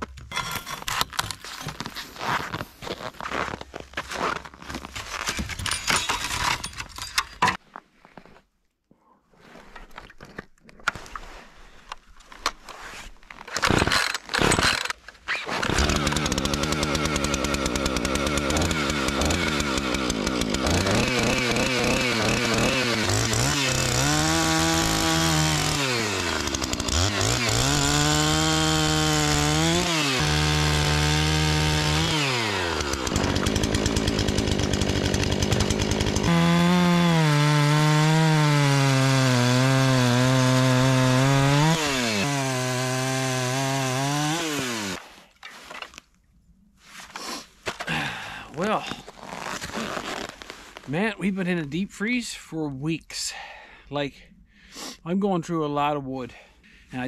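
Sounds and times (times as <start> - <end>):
chainsaw engine revving: 13.6 - 45.0.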